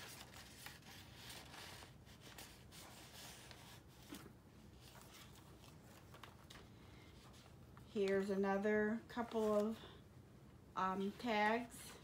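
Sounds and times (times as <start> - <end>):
paper pages rustling: 0.0 - 8.3, 9.1 - 9.9.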